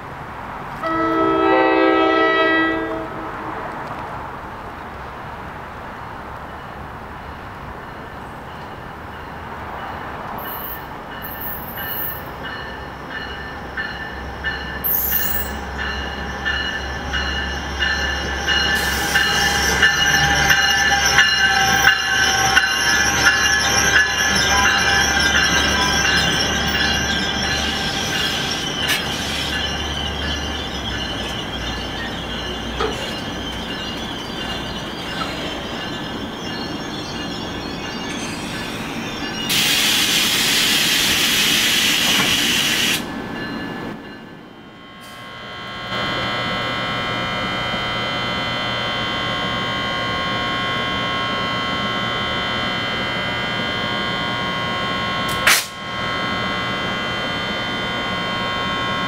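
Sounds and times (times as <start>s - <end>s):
train approaching and passing: 0.0s - 59.0s
train horn blast: 0.8s - 3.8s, 45.0s - 59.0s
wheels squealing on rails: 5.9s - 59.0s.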